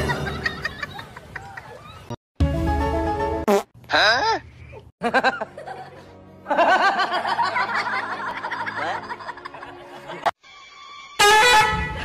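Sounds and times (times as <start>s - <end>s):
music: 2.4s - 3.5s, 5.1s - 12.0s
person snickering and laughing: 3.9s - 10.3s.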